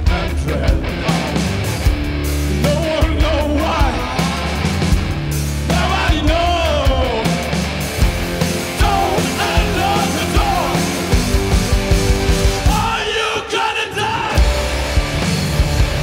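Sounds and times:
man singing: 0.0 - 1.5, 2.5 - 4.7, 5.6 - 7.4, 8.7 - 11.2, 12.6 - 14.5
rock band playing live: 0.0 - 16.0.

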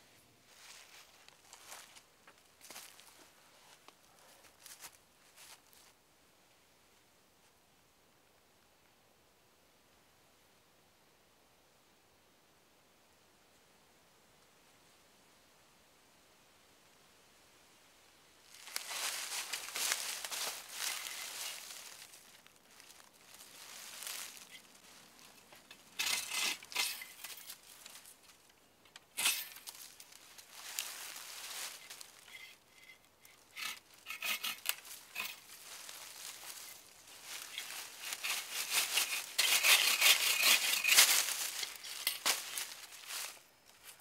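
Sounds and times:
brush rustling: 0.0 - 6.0, 18.5 - 44.0
footsteps crunching in dry leaves: 0.5 - 2.0, 2.6 - 3.8, 18.5 - 28.3, 29.3 - 32.5, 33.5 - 44.0
hand saw cutting wood: 26.0 - 27.1, 33.5 - 35.4, 37.6 - 42.4.

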